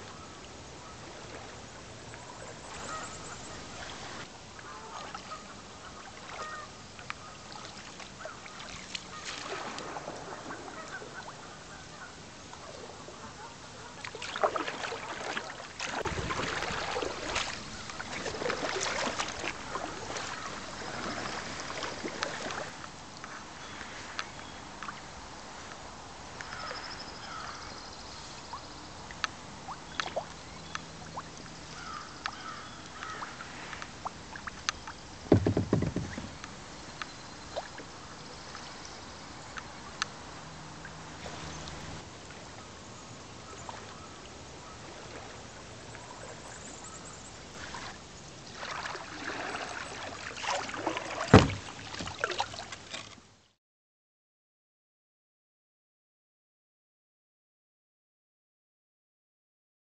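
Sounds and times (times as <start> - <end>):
paddle splashing in water: 0.0 - 25.2, 28.5 - 38.8, 39.5 - 42.5, 43.4 - 53.2
low thump: 35.3 - 36.4, 51.3 - 51.6.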